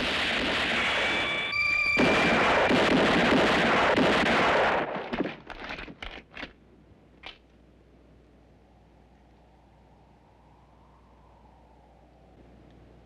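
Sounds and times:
gunfire with echo: 0.0 - 5.4
ringing tone: 0.9 - 2.5.

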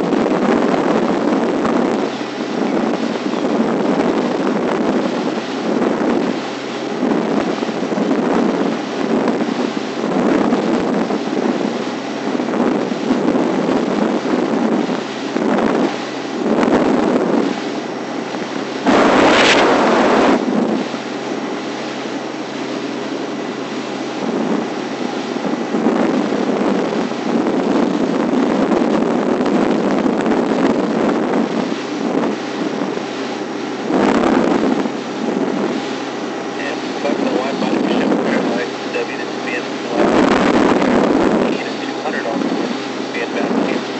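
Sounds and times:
wind buffeting microphone: 0.0 - 43.9.

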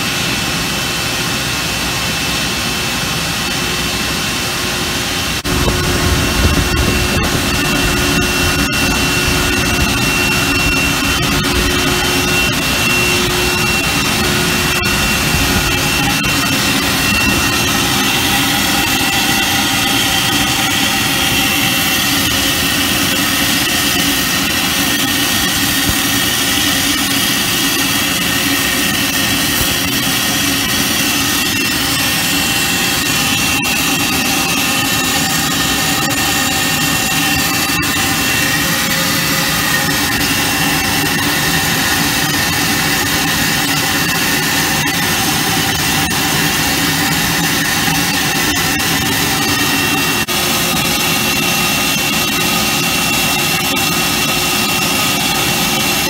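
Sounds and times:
high steady whine: 0.0 - 56.0
low hum: 0.0 - 56.0
tube mill machine noise: 0.0 - 56.0.

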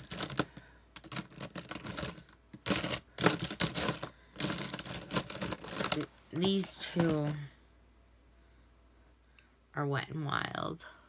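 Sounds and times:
hands rummaging through items: 0.0 - 7.5.

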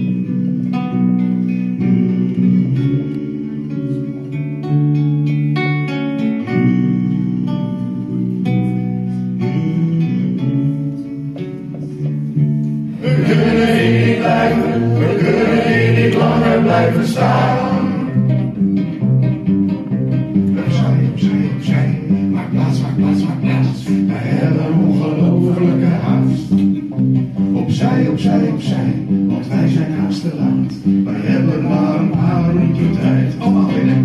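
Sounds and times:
acoustic band playing: 0.0 - 34.0
person singing: 9.4 - 11.6, 13.0 - 18.3, 27.6 - 34.0.

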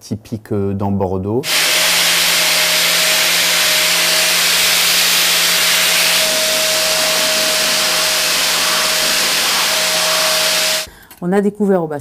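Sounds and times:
angle grinder grinding metal: 1.4 - 10.9.

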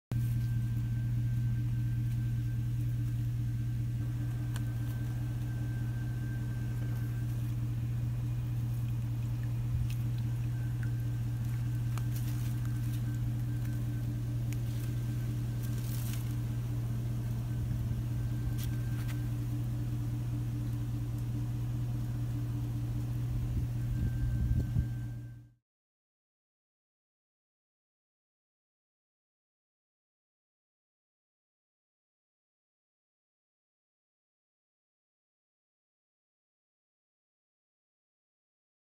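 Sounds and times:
loud low mechanical hum: 0.1 - 25.6.

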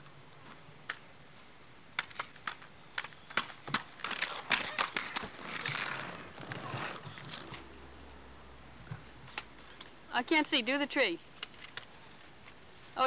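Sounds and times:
roller skates clacking on concrete: 2.0 - 7.7, 11.3 - 12.6
skater scraping on concrete: 2.5 - 7.6.

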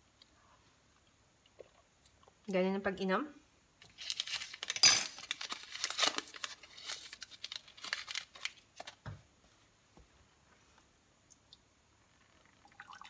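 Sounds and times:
tea bag sachet crinkling: 3.9 - 8.9.

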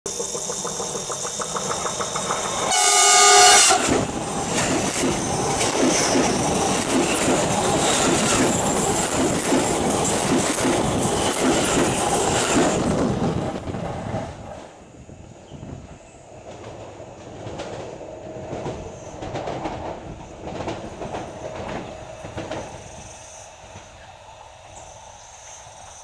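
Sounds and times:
train wheels rumbling and clacking: 0.1 - 26.0
train horn: 2.6 - 4.1.

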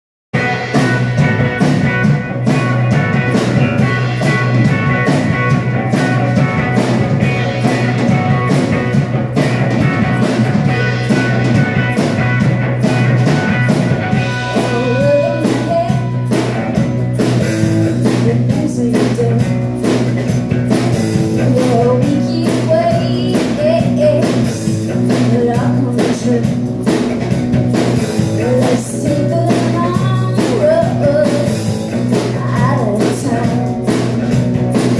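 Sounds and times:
bass guitar: 0.3 - 34.9
drum kit beat: 0.4 - 34.9
electric guitar: 0.4 - 34.9
woman singing: 9.8 - 12.4, 14.4 - 16.6, 17.9 - 20.1, 20.7 - 26.7, 28.4 - 33.8.

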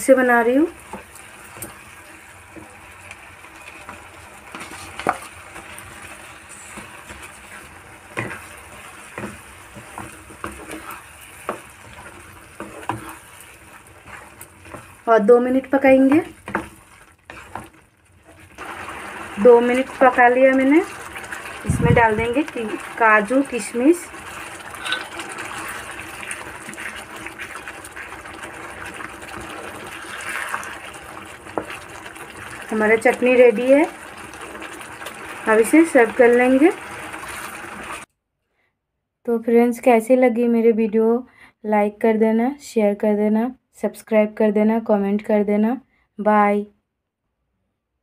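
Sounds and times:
sauce sizzling: 0.0 - 38.1
wooden spatula scraping a pan: 0.6 - 38.1.

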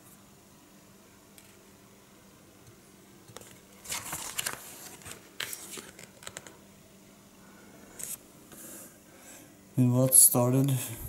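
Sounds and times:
book pages turning: 3.3 - 6.6, 8.0 - 8.2.

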